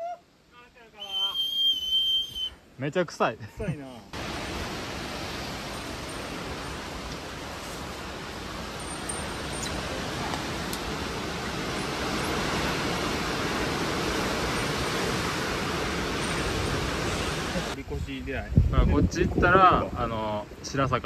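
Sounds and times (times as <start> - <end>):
wind buffeting microphone: 4.2 - 20.2.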